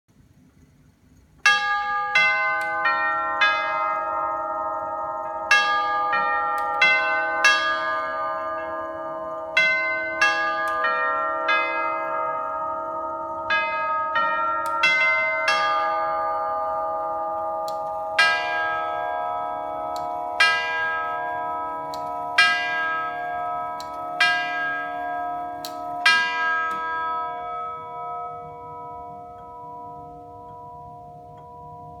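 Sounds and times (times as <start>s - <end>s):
clock chime melody: 1.4s - 32.0s
clock striking the hour: 1.4s - 32.0s.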